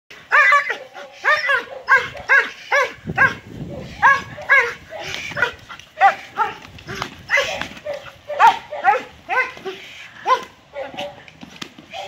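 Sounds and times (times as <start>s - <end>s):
dog barking rapidly: 0.3s - 9.6s.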